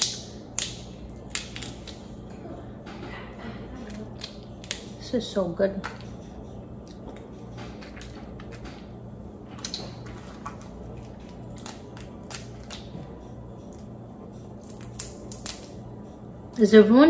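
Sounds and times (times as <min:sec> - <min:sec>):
shells cracking and snapping: 0:00.0 - 0:02.3, 0:03.8 - 0:05.0, 0:09.6 - 0:13.0, 0:14.6 - 0:15.9.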